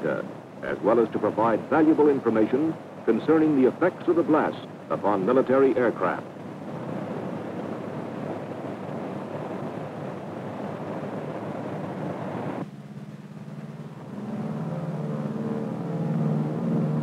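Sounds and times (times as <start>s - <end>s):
propeller aircraft engines running: 0.0s - 17.0s
low held tones: 6.2s - 17.0s.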